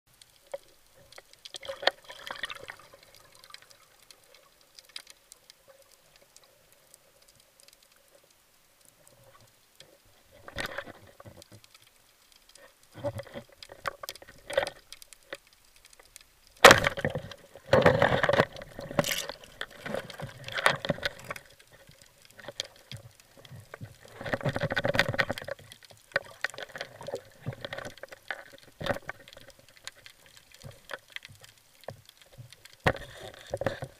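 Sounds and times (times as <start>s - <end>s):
underwater water sloshing: 0.2s - 33.9s
churning water: 1.6s - 4.0s.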